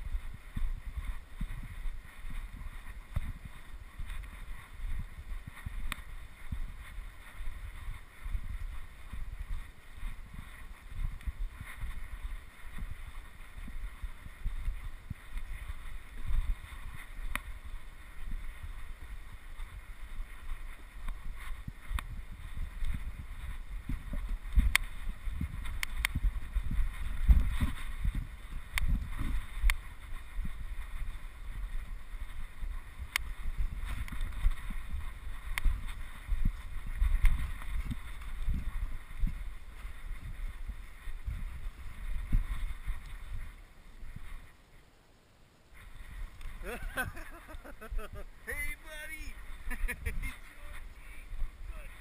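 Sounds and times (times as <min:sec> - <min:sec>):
wind buffeting microphone: 0:00.0 - 0:44.6, 0:45.7 - 0:52.0
faint sharp clicks: 0:05.6 - 0:06.1, 0:17.0 - 0:17.5, 0:21.0 - 0:22.1, 0:24.5 - 0:25.0, 0:25.6 - 0:26.2, 0:28.7 - 0:29.8, 0:33.1 - 0:34.6, 0:35.4 - 0:35.7, 0:45.8 - 0:46.6.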